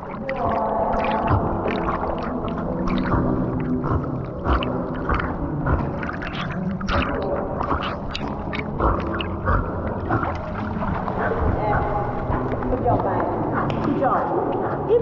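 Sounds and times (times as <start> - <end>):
water splashing around swimming dog: 0.0 - 15.0.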